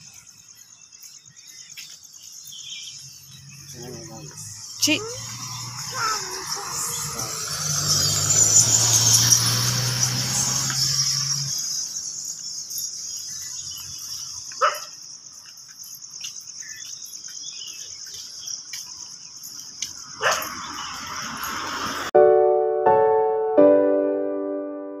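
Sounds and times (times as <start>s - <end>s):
insects chirring: 0.0s - 22.0s
dog barking: 14.6s - 15.0s, 20.2s - 20.6s
piano music: 22.2s - 25.0s.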